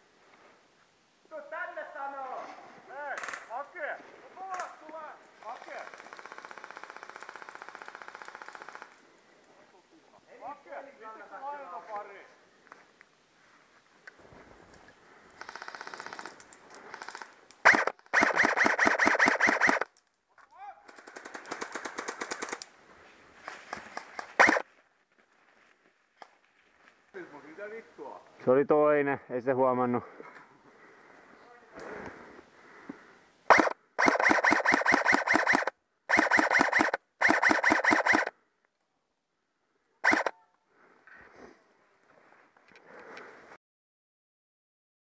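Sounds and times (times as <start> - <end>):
airsoft rifle rapid shots: 5.7 - 8.9, 15.4 - 16.3, 16.9 - 19.9, 24.2 - 24.6, 33.5 - 38.3, 40.0 - 40.3
airsoft guns firing: 5.7 - 9.0, 15.4 - 16.3, 16.9 - 19.9, 24.1 - 24.6, 33.5 - 38.3, 40.0 - 40.3.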